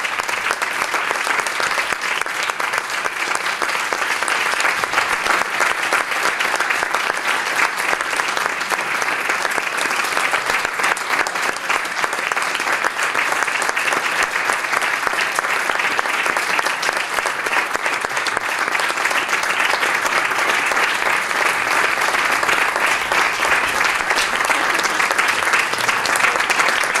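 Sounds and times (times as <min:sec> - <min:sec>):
audience applause: 0:00.0 - 0:27.0.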